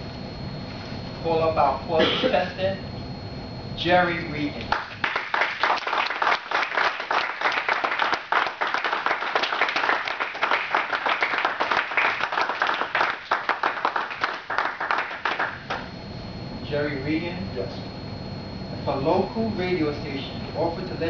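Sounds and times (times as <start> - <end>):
audience applauding: 4.7 - 15.8.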